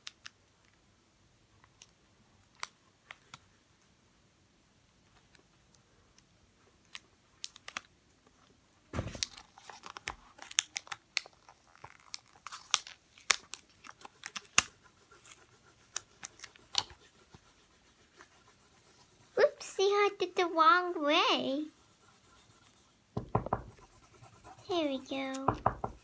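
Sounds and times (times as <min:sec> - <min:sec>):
thump on tabletop: 0:09.0 - 0:09.4, 0:23.2 - 0:23.8
paper and tape crinkling: 0:09.0 - 0:19.6.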